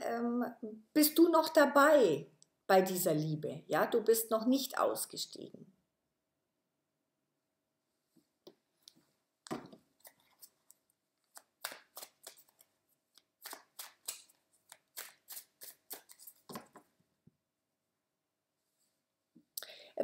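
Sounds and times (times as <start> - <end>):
cards being shuffled: 9.5 - 17.0.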